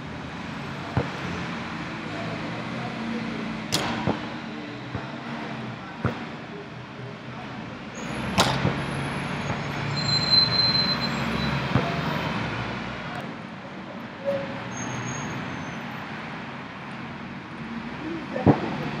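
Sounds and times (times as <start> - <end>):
road traffic rumbling: 0.0 - 19.0
basketball bouncing: 8.4 - 8.8.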